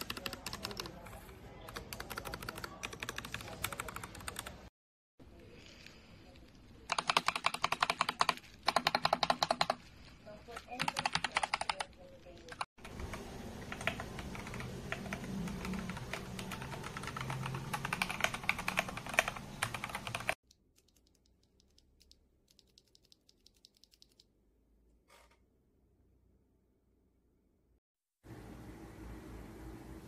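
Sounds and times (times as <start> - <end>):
mechanical keyboard typing: 0.0 - 4.6, 6.9 - 9.8, 10.6 - 24.2.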